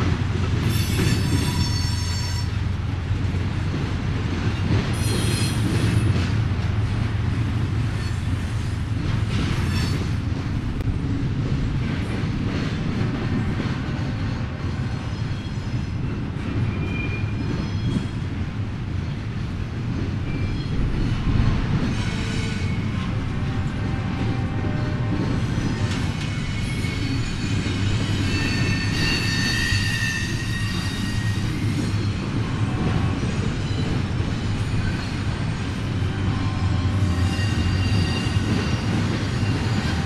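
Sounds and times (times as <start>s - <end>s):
freight train rumbling on track: 0.0s - 40.0s
train wheels squealing: 0.6s - 2.7s, 4.9s - 6.2s, 7.9s - 8.8s, 9.4s - 10.4s, 14.2s - 18.2s, 20.2s - 23.2s, 24.7s - 40.0s.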